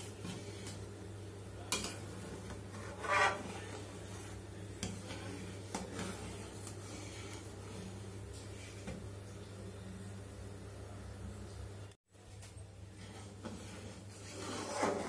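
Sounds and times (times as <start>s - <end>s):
metal ladle scraping pan: 1.7s - 8.0s, 13.0s - 15.0s.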